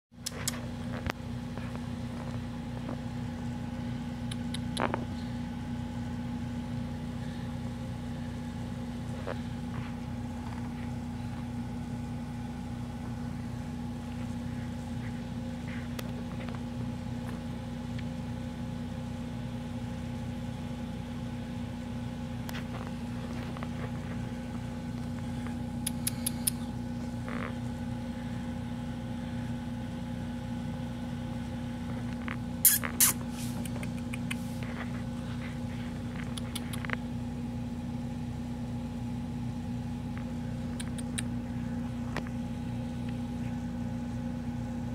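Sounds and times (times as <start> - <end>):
kitten purring: 0.2 - 5.4, 22.6 - 27.8, 31.8 - 37.1, 40.6 - 41.8
steady hum: 0.2 - 44.9.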